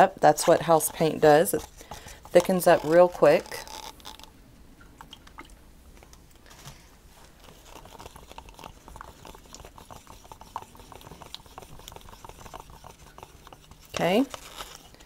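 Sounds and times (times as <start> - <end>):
wet clicks of paint stirring: 0.3 - 6.5, 7.4 - 15.0.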